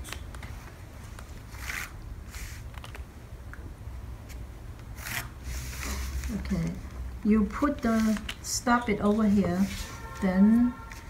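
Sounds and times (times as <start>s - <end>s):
low steady hum: 0.0s - 11.0s
paper handling: 7.5s - 8.4s.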